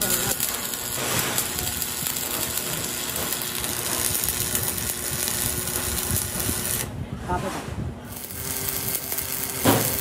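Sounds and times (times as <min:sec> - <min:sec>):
welding arc crackling: 0:00.0 - 0:06.9, 0:08.1 - 0:10.0.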